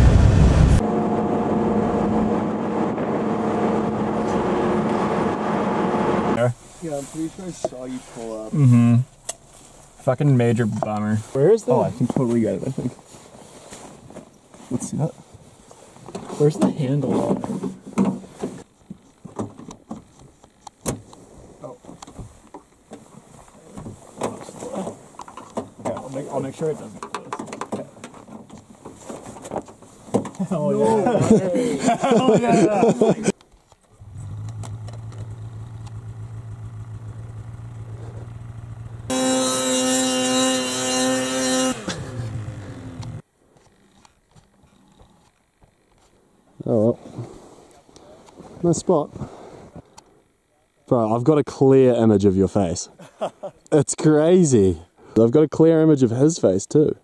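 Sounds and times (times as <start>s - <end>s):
snowmobile engine idling and revving: 0.0s - 9.0s, 34.0s - 43.3s.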